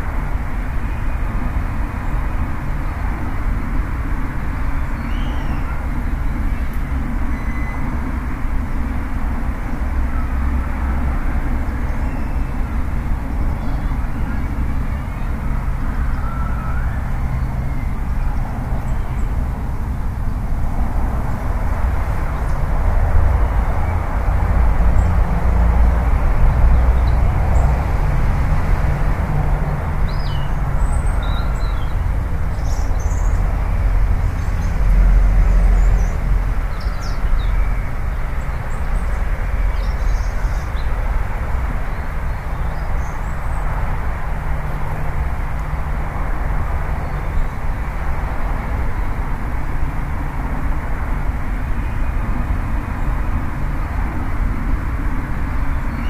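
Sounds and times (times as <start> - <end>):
low outdoor rumble: 0.0 - 56.0
faint high bird chirps: 4.8 - 8.0.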